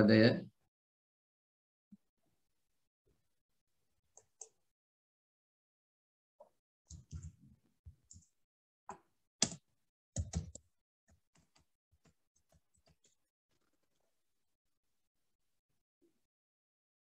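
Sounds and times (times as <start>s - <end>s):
computer keyboard keys clicking: 10.2s - 10.6s.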